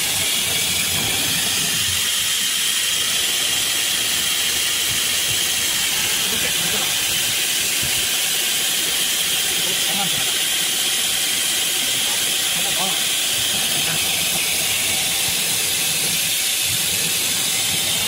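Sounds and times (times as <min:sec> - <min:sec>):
cnc router hissing: 0:00.0 - 0:18.0.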